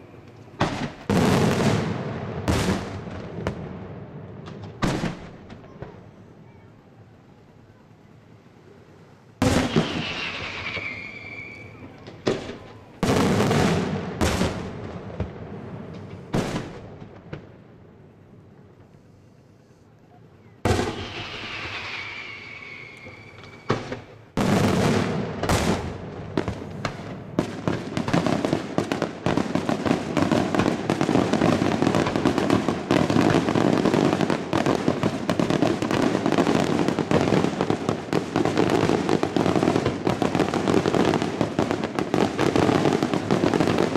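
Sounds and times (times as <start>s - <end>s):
rapid firework bangs and crackling: 0.0s - 7.0s, 9.4s - 19.1s, 20.6s - 43.9s
firework shell bursts: 9.5s - 11.8s, 20.7s - 24.2s
falling firework whistle: 9.5s - 12.9s, 20.6s - 24.3s.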